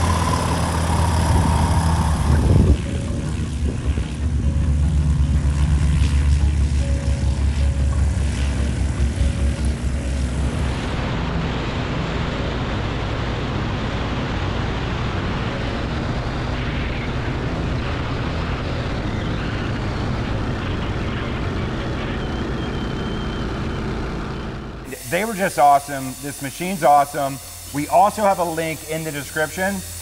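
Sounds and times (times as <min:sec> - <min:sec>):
wind rush: 0:00.0 - 0:04.7
airplane engine and propeller: 0:00.0 - 0:30.0.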